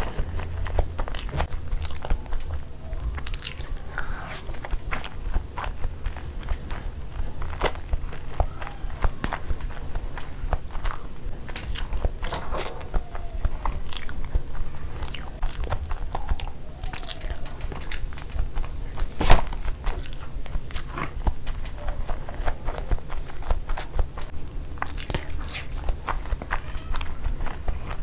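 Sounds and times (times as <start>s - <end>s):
close chewing and mouth smacks: 0.0s - 28.0s.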